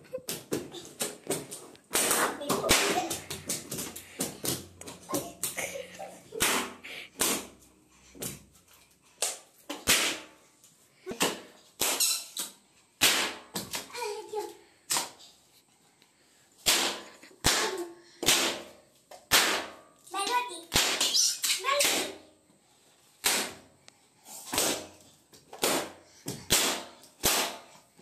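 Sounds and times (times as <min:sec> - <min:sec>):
balloons popping underfoot: 0:00.0 - 0:05.7.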